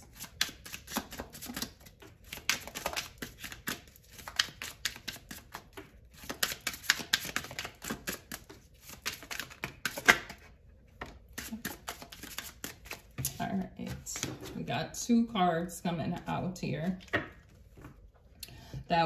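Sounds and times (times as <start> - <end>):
cards being shuffled: 0.1 - 10.4, 11.0 - 14.5.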